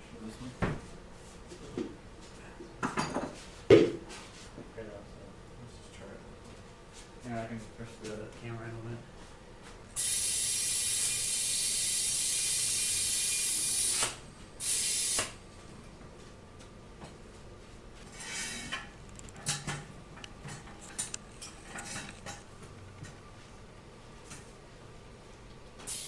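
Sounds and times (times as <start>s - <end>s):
compressed air hissing: 10.0s - 15.4s.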